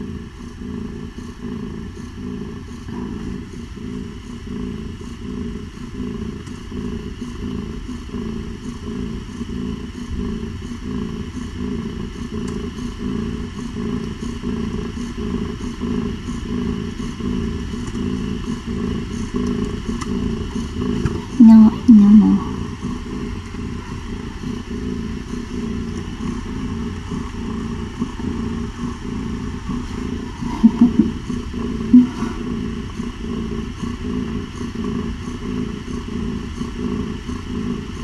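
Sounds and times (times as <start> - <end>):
cat purring: 0.0 - 38.0.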